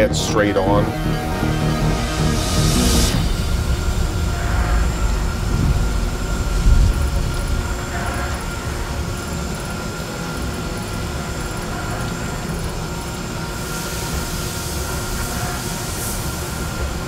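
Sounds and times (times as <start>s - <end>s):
milling machine hum: 0.0s - 17.0s
hiss: 11.6s - 17.0s.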